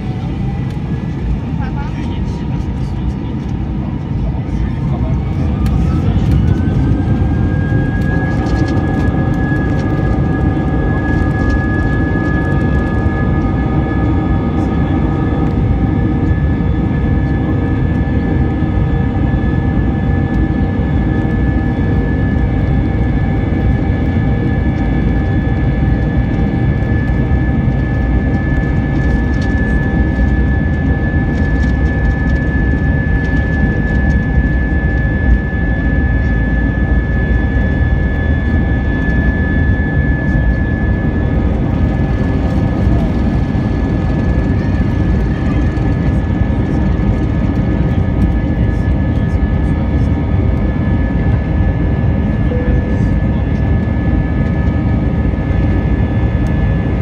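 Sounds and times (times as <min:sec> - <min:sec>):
jet engines rumbling and whining: 0:00.0 - 0:57.0.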